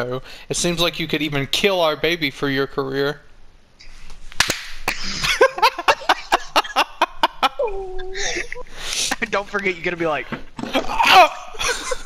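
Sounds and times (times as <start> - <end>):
hand slapping a face: 4.4 - 4.8
short voice-like cries: 10.8 - 11.6.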